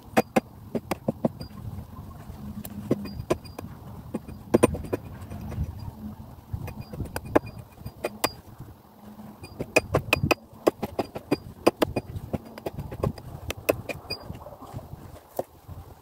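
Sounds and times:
hatchet chopping wood: 0:00.0 - 0:01.4, 0:09.6 - 0:14.0.

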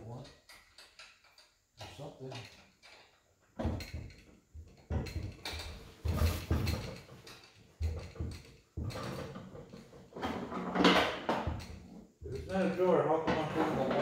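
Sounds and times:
wooden drawer knocking and scraping: 0:13.2 - 0:14.0.

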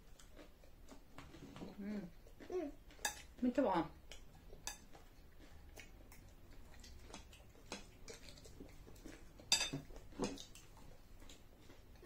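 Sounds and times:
cutlery clicking on plates: 0:09.5 - 0:10.5.

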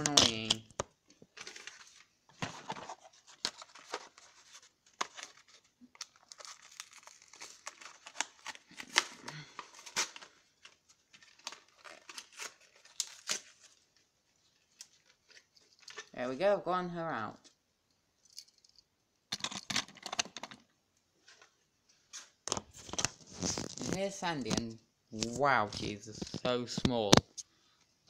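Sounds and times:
cardboard tearing and crinkling: 0:01.3 - 0:14.0, 0:22.5 - 0:24.0.

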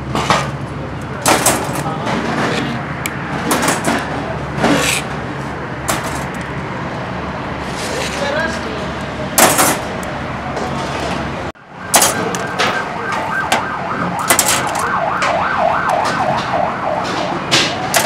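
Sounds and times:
siren wailing: 0:11.6 - 0:18.0
metal skewers clinking: 0:14.2 - 0:14.9.

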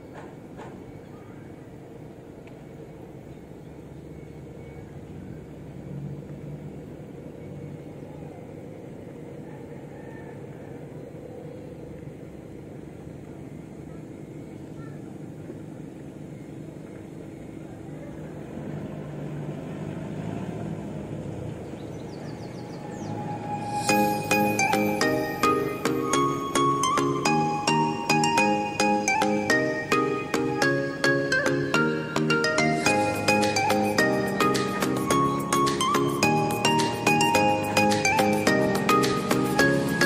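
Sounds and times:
motorboat engine running: 0:15.4 - 0:23.5.

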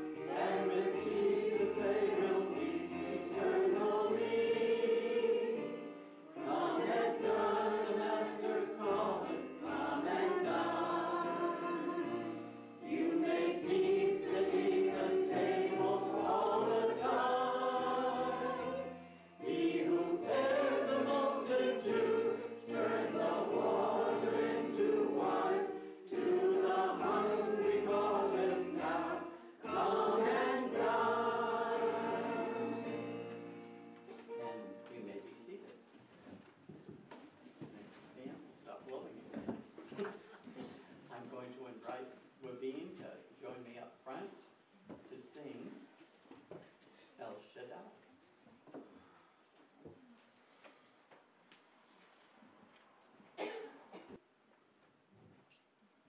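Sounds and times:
choir singing a hymn: 0:00.0 - 0:34.4.

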